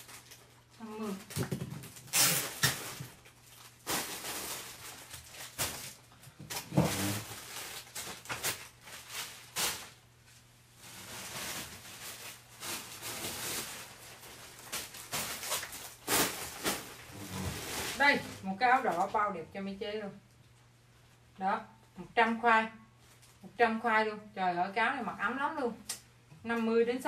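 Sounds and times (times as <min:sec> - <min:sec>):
crinkles and thumps: 0:00.0 - 0:09.9, 0:10.8 - 0:19.2
plastic bags rustling: 0:00.0 - 0:19.4.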